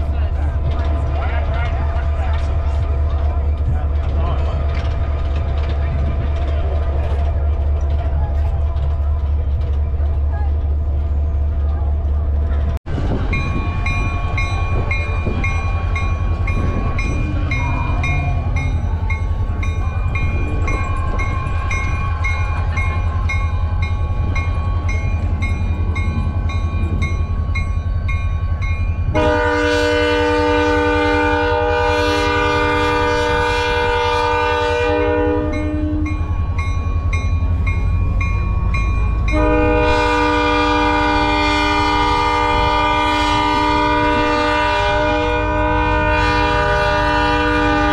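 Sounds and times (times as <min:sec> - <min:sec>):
diesel locomotive rumbling: 0:00.0 - 0:47.9
bell ringing: 0:13.3 - 0:29.2
train air horn blast: 0:29.1 - 0:36.2, 0:39.3 - 0:47.9.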